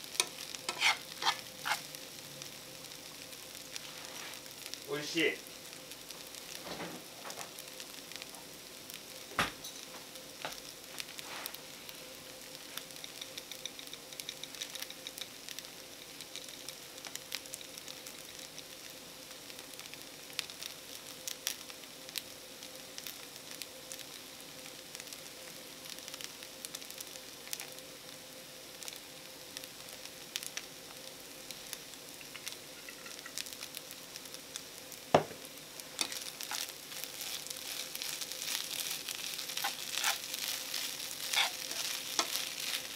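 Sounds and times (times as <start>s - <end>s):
rice sizzling in a frying pan: 0.0s - 42.9s
chopsticks knocking on pan: 35.2s - 35.4s.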